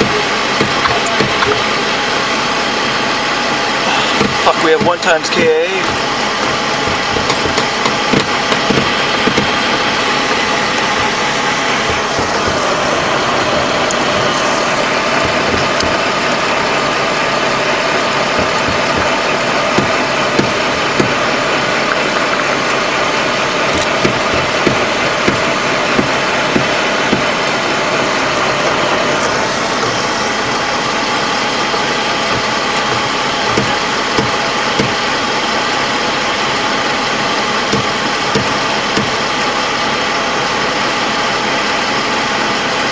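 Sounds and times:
diesel engine running: 0.0s - 42.9s
short sharp knocks: 18.4s - 21.2s, 31.7s - 35.0s.

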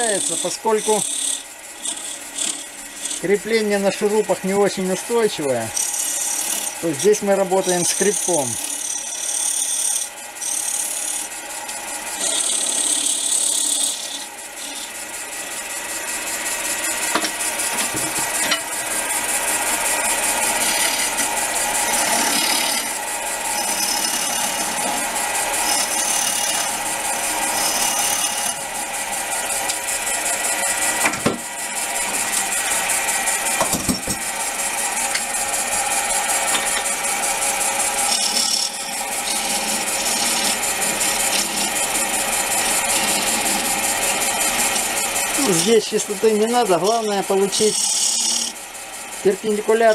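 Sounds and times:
lathe motor hum: 0.0s - 49.9s
tool scraping spinning wood: 0.0s - 49.9s.

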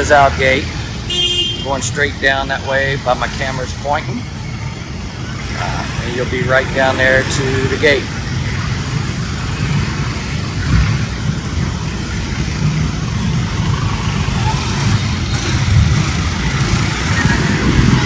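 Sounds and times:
street traffic engines rumbling: 0.0s - 18.0s.

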